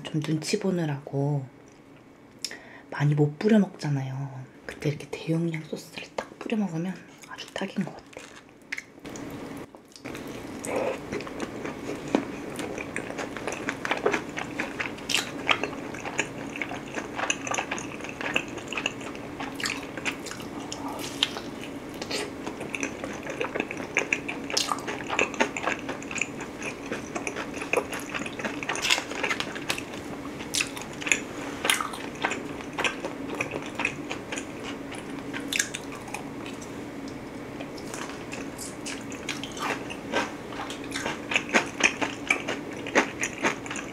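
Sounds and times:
faint steady hum: 0:00.0 - 0:43.9
biting and chewing food: 0:08.0 - 0:36.7, 0:37.6 - 0:43.9.

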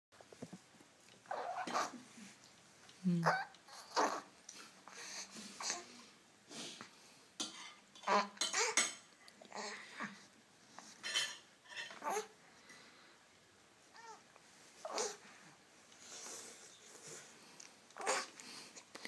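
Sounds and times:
baby squealing: 0:01.3 - 0:01.9
baby cooing and babbling: 0:01.3 - 0:02.0, 0:03.2 - 0:04.3, 0:11.8 - 0:12.4, 0:13.9 - 0:14.2, 0:14.8 - 0:15.2, 0:18.0 - 0:18.3.

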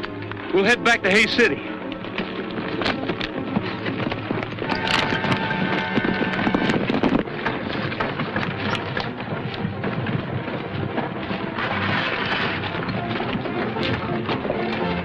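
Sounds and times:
horses galloping: 0:00.0 - 0:15.0.

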